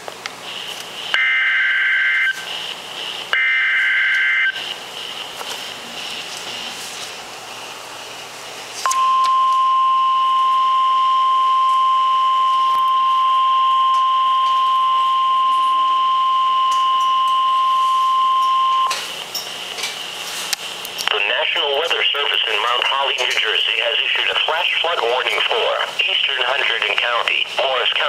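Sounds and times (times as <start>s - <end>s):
radio hiss: 0.3s - 8.2s, 21.0s - 28.0s
radio alarm tone beep: 1.2s - 2.6s, 3.4s - 4.7s, 8.9s - 19.0s.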